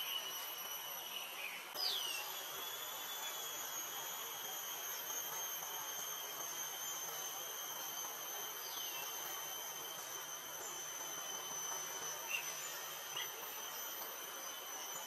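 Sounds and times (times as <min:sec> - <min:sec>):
bird chirps: 0:00.0 - 0:02.4
high-pitched insect drone: 0:00.0 - 0:15.0.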